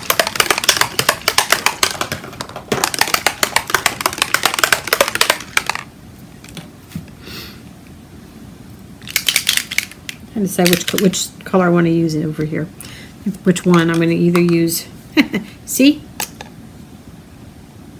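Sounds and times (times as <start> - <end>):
plastic bottles clicking and rattling: 0.0 - 6.6, 9.0 - 11.2.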